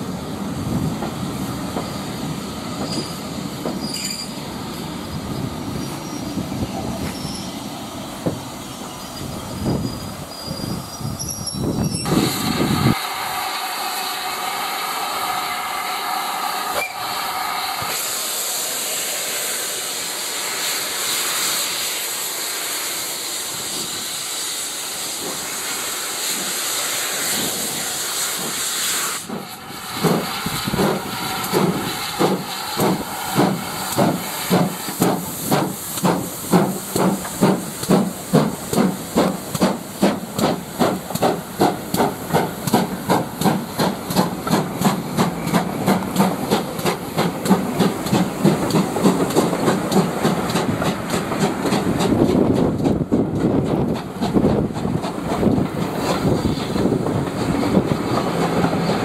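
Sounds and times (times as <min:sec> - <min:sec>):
steam hissing: 0:00.0 - 0:59.0
steam locomotive exhaust beats: 0:00.0 - 0:59.0
train coaches rolling by: 0:00.0 - 0:59.0.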